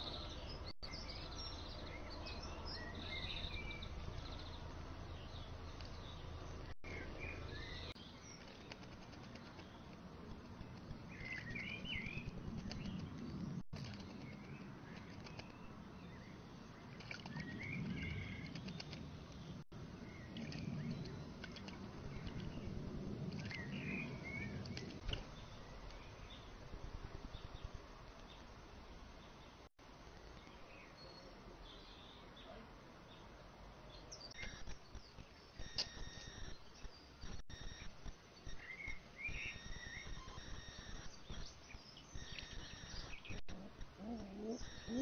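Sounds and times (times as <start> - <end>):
birds chirping: 0.0 - 45.0
wings fluttering: 8.2 - 15.8, 16.9 - 19.6
bird splashing water: 16.7 - 25.4
songbird warbling: 38.6 - 45.0.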